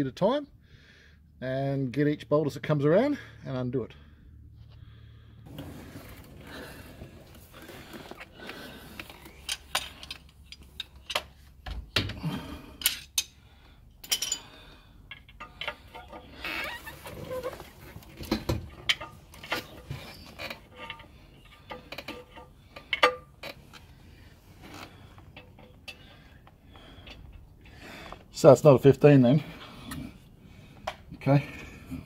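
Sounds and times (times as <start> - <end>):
hand tools clinking on metal: 14.0 - 16.8.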